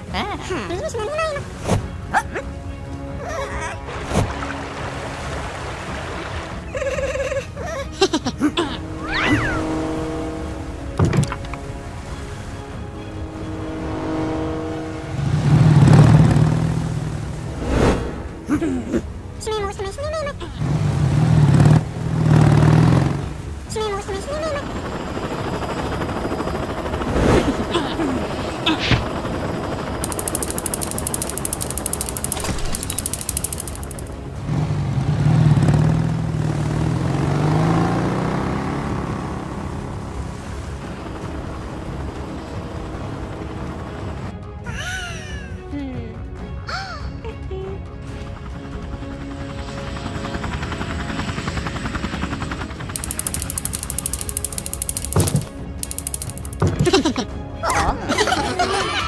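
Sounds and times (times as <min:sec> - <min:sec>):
helicopter rotor chopping: 0:08.8 - 0:11.6, 0:20.3 - 0:34.4, 0:40.9 - 0:44.3, 0:49.4 - 0:57.1
jet ski engine revving: 0:20.6 - 0:23.4, 0:35.3 - 0:39.8.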